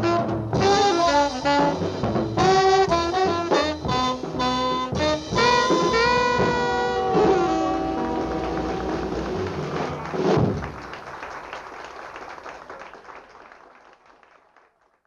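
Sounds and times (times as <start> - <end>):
drum hit: 0.0 - 8.0, 9.0 - 10.8
alto saxophone held notes: 0.0 - 9.6
live jazz band: 0.0 - 11.1.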